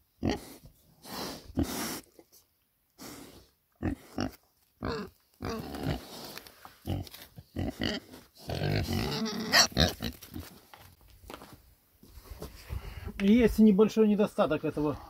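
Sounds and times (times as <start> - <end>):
pigs grunting: 6.8 - 10.5.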